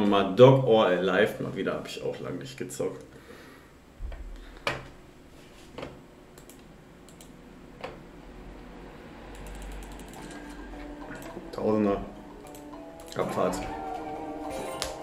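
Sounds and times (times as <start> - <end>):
mouse and keyboard clicks: 9.4 - 10.5.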